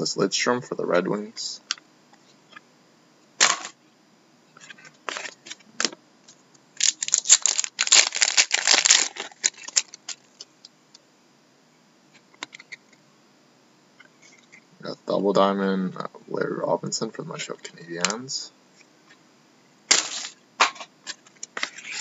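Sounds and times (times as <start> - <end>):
foil wrapper crinkling: 6.8 - 10.4.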